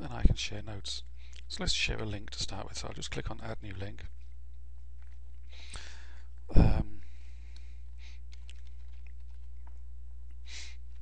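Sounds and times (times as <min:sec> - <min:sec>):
keyboard typing: 0:08.3 - 0:09.7.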